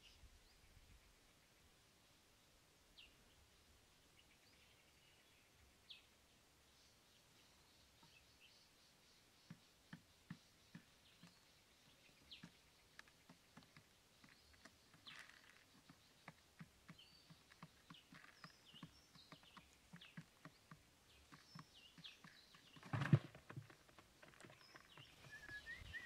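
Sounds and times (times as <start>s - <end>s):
small birds chirping: 0.0s - 26.0s
pigeons pecking plastic bucket: 12.2s - 26.0s.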